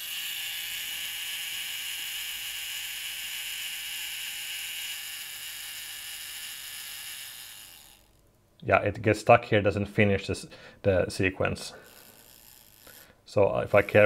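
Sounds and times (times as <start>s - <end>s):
clockwork self-timer buzz: 0.0s - 8.2s, 11.7s - 14.0s.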